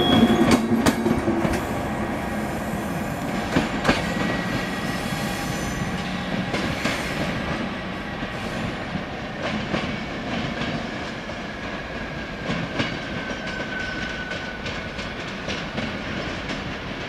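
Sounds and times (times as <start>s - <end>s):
wheel squeal: 0.0s - 0.6s
train rumble: 0.0s - 17.0s
train wheels clicking over rail joints: 0.1s - 1.9s, 3.2s - 17.0s.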